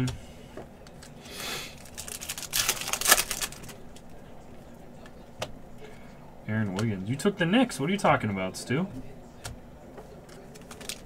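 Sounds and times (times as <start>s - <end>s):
plastic wrapper crinkling: 1.0s - 4.1s, 10.3s - 11.0s
plastic wrapper tearing: 1.7s - 4.0s, 10.5s - 11.0s.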